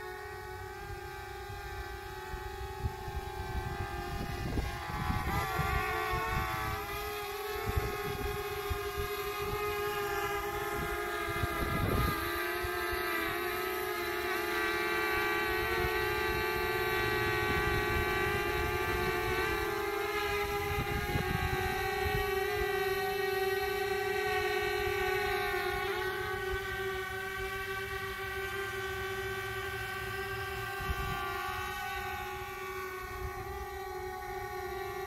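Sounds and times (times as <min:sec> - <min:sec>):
drone propeller whine: 0:00.0 - 0:35.0
wind rumbling on microphone: 0:00.3 - 0:14.0, 0:15.4 - 0:27.6, 0:29.8 - 0:35.0.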